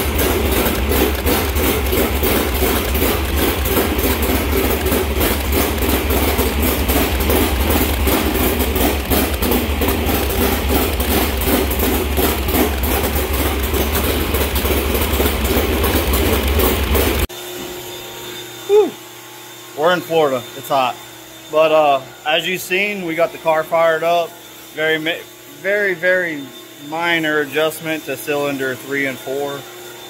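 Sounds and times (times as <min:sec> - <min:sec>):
race engine idling: 0:00.0 - 0:17.3.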